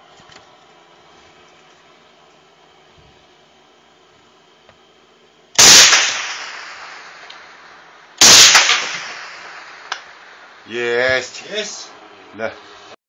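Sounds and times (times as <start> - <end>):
rifle shots with echo: 5.6 - 10.7.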